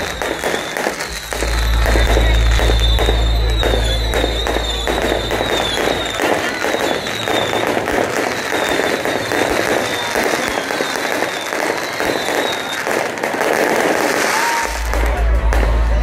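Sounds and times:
high falling firework whistles: 0.0s - 15.6s
fireworks crackling and popping: 0.0s - 16.0s.

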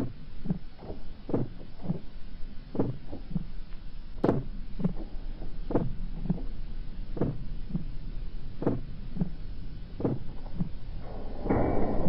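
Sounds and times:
heartbeat double thump: 4.2s - 5.0s, 7.2s - 7.9s, 10.0s - 10.7s.

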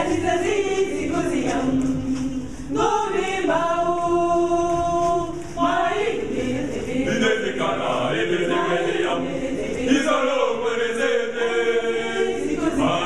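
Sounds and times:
mixed choir singing a cappella: 0.0s - 13.0s.

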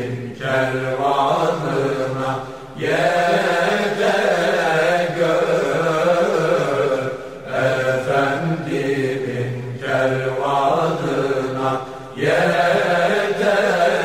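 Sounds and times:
unaccompanied hymn singing: 0.0s - 14.0s.

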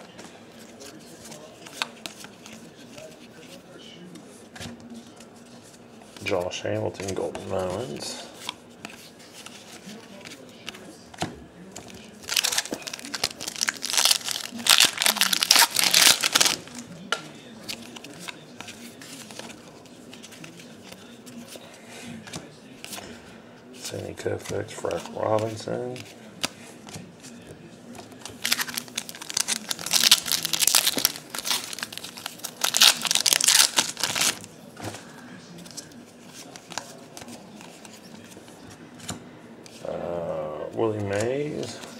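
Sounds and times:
foil wrapper tearing and crinkling: 12.2s - 16.7s, 28.4s - 34.5s.

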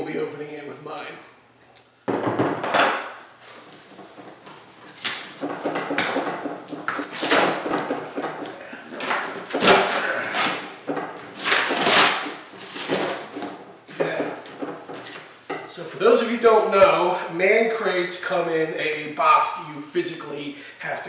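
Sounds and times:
cardboard ripping and crinkling: 8.9s - 13.4s.

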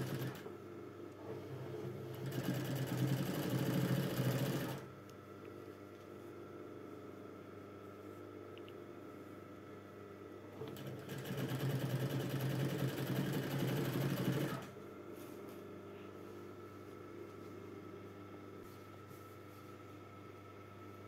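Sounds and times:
sewing machine stitching: 2.1s - 4.9s, 10.6s - 14.7s.

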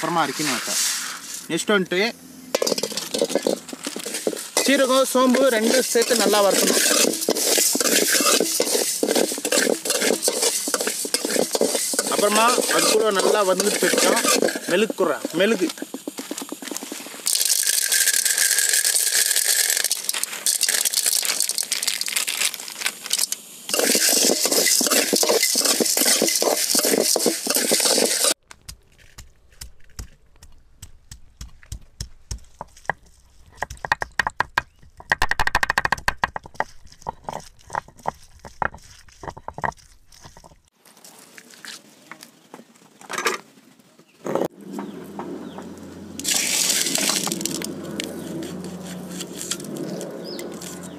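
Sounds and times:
seeds rattling under metal spatula: 2.5s - 28.4s, 46.2s - 50.9s
grinding stone on stone slab: 2.6s - 20.2s, 23.7s - 28.4s, 32.3s - 40.7s, 46.2s - 50.9s.

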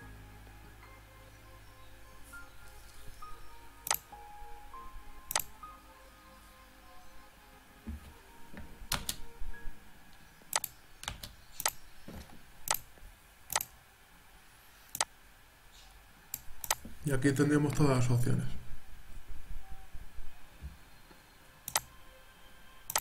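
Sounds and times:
faint background music: 0.0s - 23.0s
keyboard and mouse clicks: 3.8s - 4.1s, 5.3s - 5.5s, 8.9s - 9.2s, 10.5s - 11.8s, 12.6s - 12.9s, 13.5s - 13.7s, 14.9s - 15.1s, 16.3s - 16.9s, 21.7s - 21.9s.

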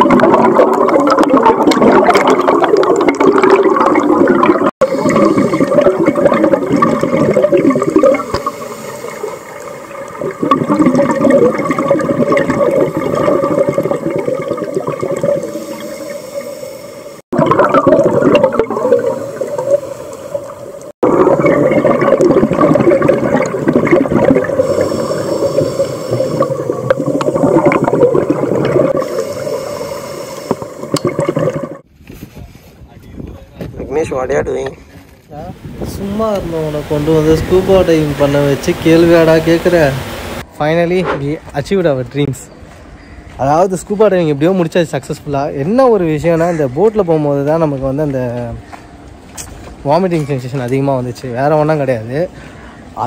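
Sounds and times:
underwater bubbling and gurgling: 0.0s - 31.9s.

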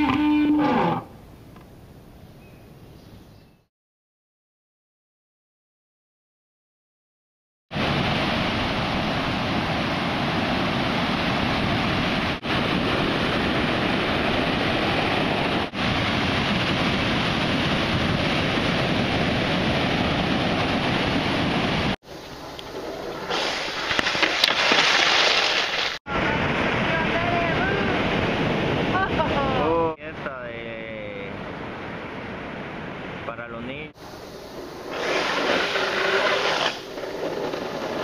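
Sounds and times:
wind on microphone: 7.7s - 24.2s
breaking surf: 7.7s - 33.3s, 33.9s - 38.0s
skateboard sliding on asphalt: 21.5s - 26.0s, 34.0s - 38.0s
glove dragging on road: 22.7s - 26.0s.

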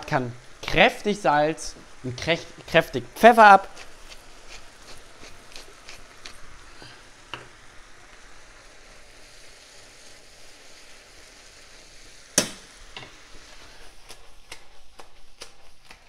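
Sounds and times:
spinach sizzling in a frying pan: 0.0s - 16.0s
spatula stirring: 1.6s - 7.6s
sharp knock: 12.4s - 12.7s.

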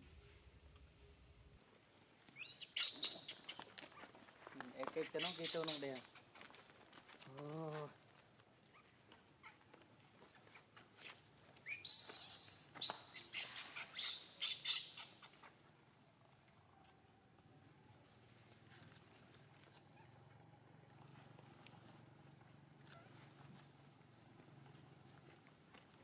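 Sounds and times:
baby monkey shrieking: 2.4s - 3.6s, 11.6s - 15.4s.

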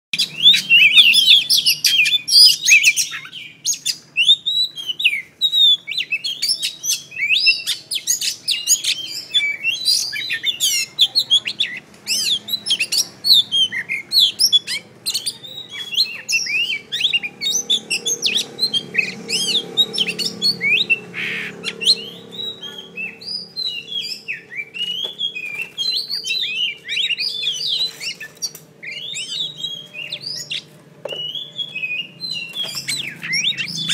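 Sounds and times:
bird singing whistles and trills: 0.2s - 33.9s.

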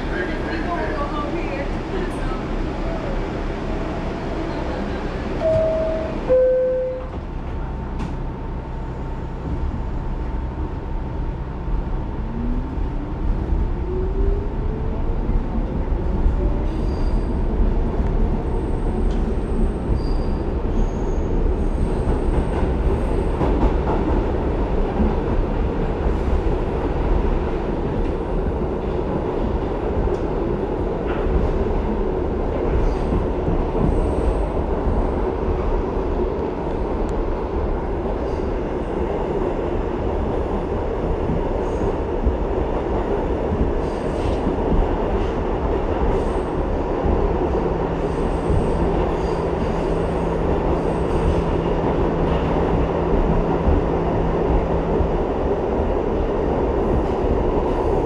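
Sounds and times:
subway car rumble: 0.0s - 58.0s
two-note door chime: 5.4s - 7.1s.

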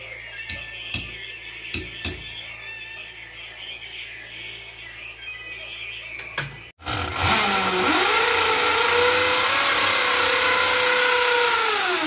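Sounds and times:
power drill boring into wall: 6.8s - 12.0s.

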